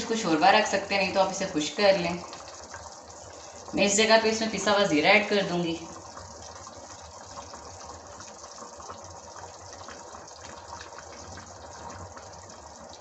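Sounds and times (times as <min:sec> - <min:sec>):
broth boiling with small pops: 0:00.0 - 0:13.0.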